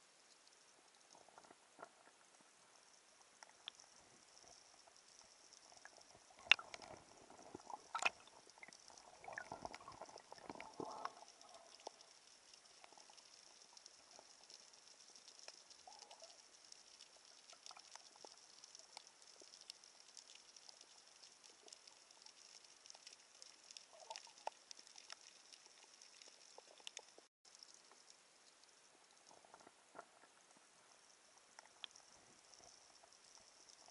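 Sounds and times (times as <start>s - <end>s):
crackle of tiny underwater clicks: 0.0s - 33.9s
rumbling bubble-like noise: 5.8s - 12.0s.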